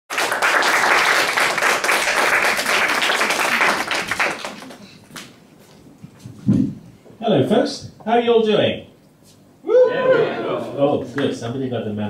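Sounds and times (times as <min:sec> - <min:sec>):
audience applauding: 0:00.1 - 0:05.2.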